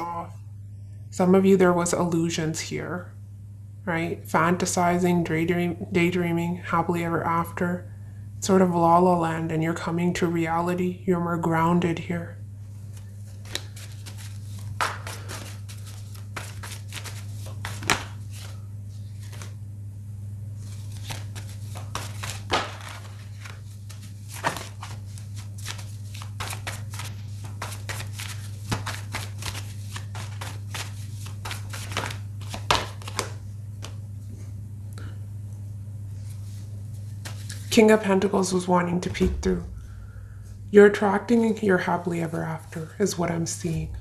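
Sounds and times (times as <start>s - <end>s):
low electrical hum: 0.0s - 44.0s
cards being shuffled: 12.8s - 19.6s, 20.6s - 34.0s, 36.2s - 37.7s.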